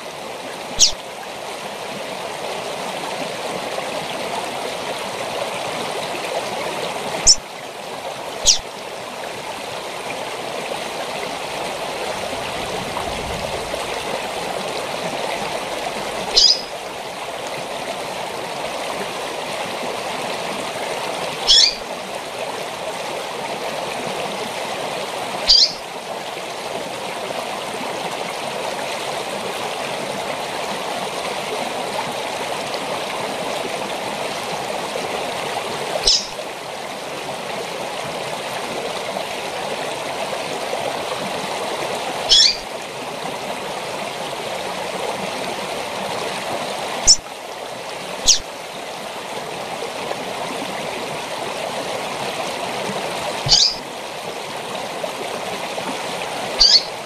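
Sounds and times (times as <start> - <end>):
waterfall rushing: 0.0 - 27.8, 29.4 - 43.1, 43.9 - 57.0
bird high call notes: 0.8 - 1.0, 8.4 - 8.6, 16.4 - 16.7, 21.5 - 21.8, 25.5 - 25.8, 36.0 - 36.4, 42.3 - 42.6, 53.5 - 53.8, 56.6 - 56.9.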